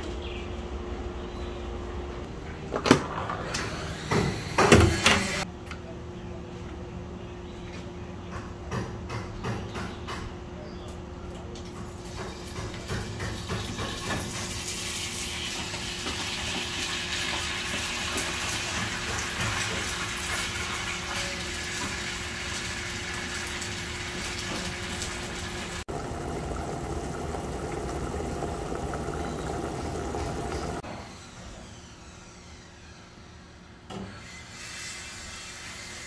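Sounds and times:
food sizzling in a frying pan: 0:14.3 - 0:30.8.

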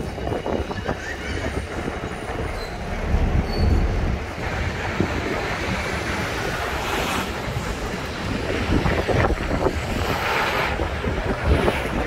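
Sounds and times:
city traffic noise: 0:00.0 - 0:12.0
wind buffeting microphone: 0:00.0 - 0:12.0.

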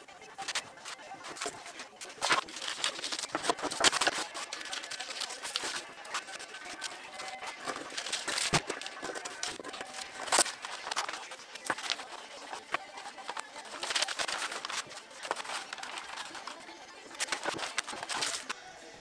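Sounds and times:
paper rustling and crinkling: 0:00.2 - 0:18.6
scissors snipping paper: 0:00.4 - 0:18.6.

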